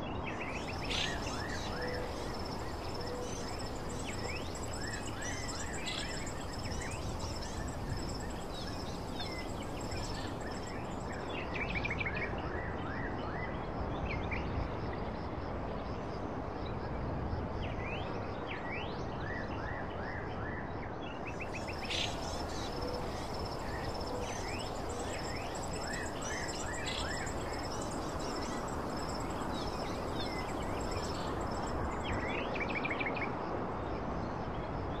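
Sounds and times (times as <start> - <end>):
insect trill: 0.3 - 12.2, 21.3 - 33.2
background hiss: 0.4 - 11.4, 21.4 - 32.4
birds chirping: 0.5 - 11.2, 21.6 - 32.2.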